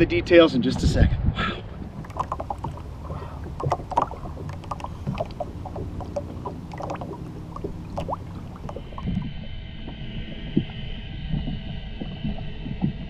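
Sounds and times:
steady low hum: 1.0s - 13.0s
water splashing against boat: 1.6s - 13.0s.

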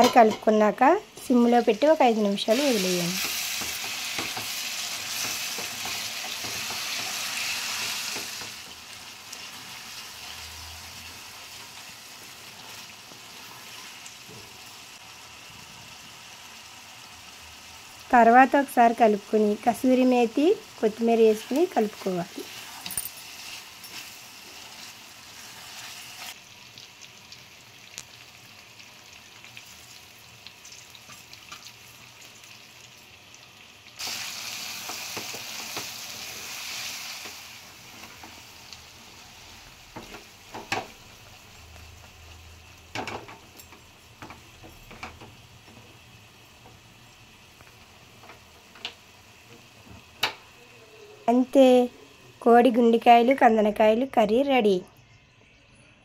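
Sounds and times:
curry sizzling in a frying pan: 0.0s - 53.7s
spatula tapping pan: 3.2s - 7.2s.

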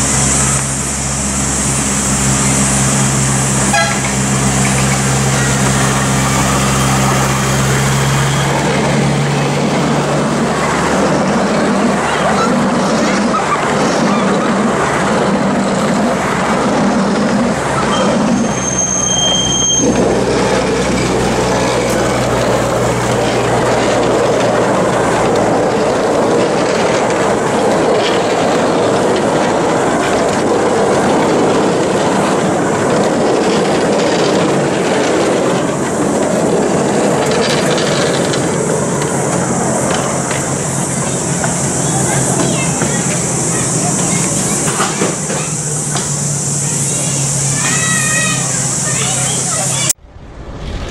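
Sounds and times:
train wheels rumbling on track: 0.0s - 50.9s
high-pitched wheel squeal: 2.3s - 10.0s, 17.6s - 26.0s, 39.6s - 49.9s.

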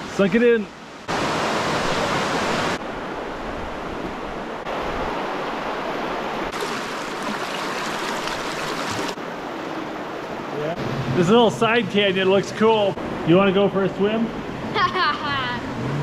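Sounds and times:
river water rushing: 0.7s - 11.2s.

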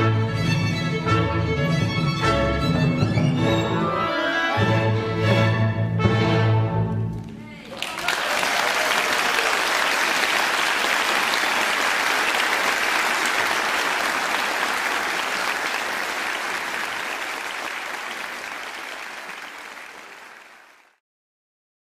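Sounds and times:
audience applauding: 7.4s - 21.0s.

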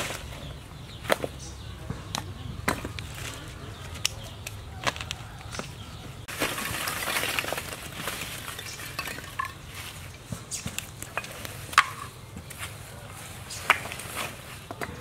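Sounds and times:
charcoal clattering onto ground: 4.8s - 12.8s, 13.5s - 15.0s
plastic bag rustling: 6.3s - 10.1s
small clinks of charcoal: 7.0s - 9.8s.

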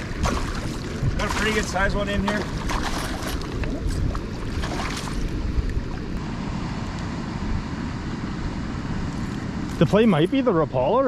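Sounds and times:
fish splashing in water: 0.0s - 6.2s
wind buffeting microphone: 0.0s - 6.2s.

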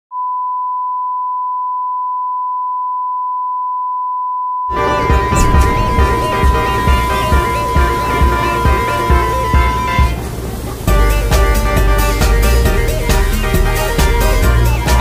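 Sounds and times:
steady high beep: 4.7s - 10.2s
music with heavy bass beat: 4.7s - 15.0s.

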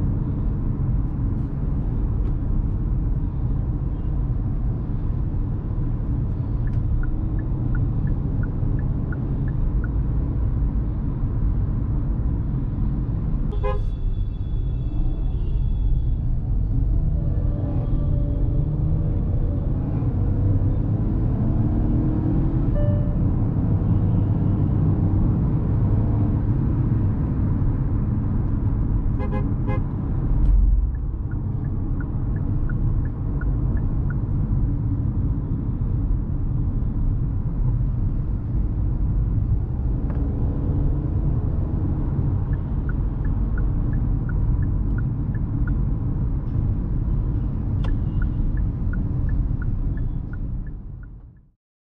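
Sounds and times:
car engine and road rumble: 0.0s - 51.6s
turn signal ticking: 5.6s - 10.6s, 29.8s - 35.4s, 38.7s - 51.6s.

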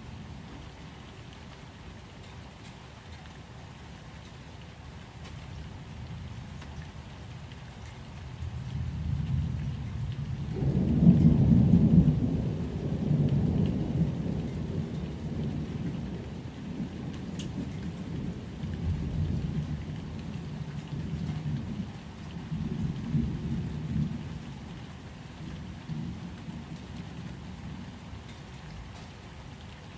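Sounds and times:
steady rain: 0.0s - 29.9s
thunder rumbling: 8.6s - 21.9s.

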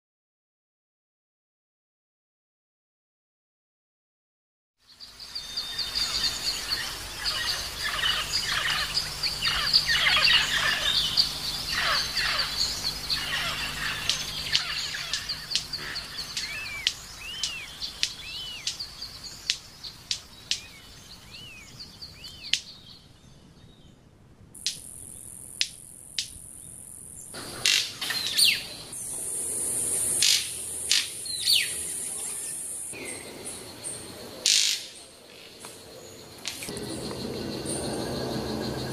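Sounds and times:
high insect buzz: 5.0s - 20.8s, 24.6s - 33.0s
birds chirping and whistling: 5.0s - 24.0s, 24.6s - 38.9s
sharp snaps: 14.0s - 20.8s, 22.3s - 22.7s, 24.6s - 26.5s, 27.5s - 28.4s, 30.2s - 31.2s, 34.4s - 35.0s.

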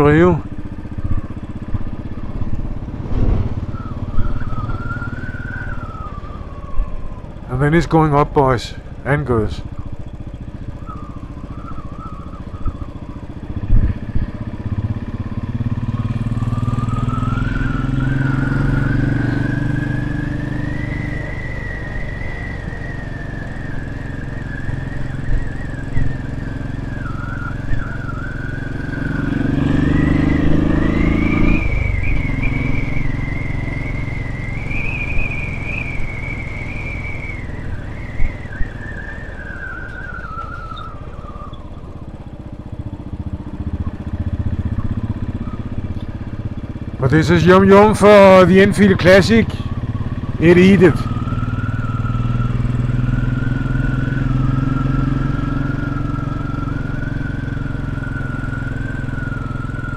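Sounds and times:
motorcycle engine running: 0.0s - 59.9s
thin high whistle: 3.6s - 7.0s, 15.9s - 42.2s, 47.7s - 59.9s.

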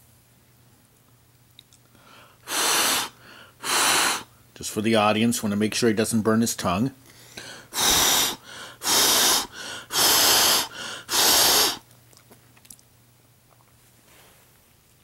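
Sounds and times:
person blowing on food: 2.4s - 4.3s, 7.7s - 11.8s.

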